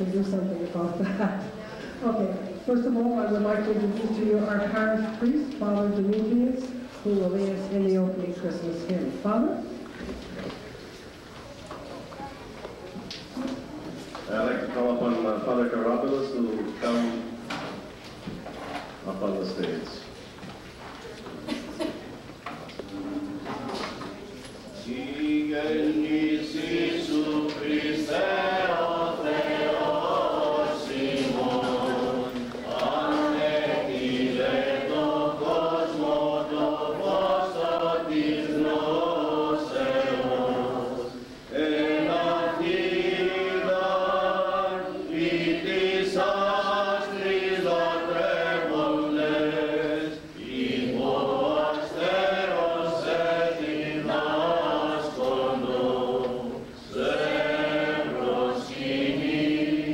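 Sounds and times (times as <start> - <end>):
men singing a hymn: 24.9 - 59.9.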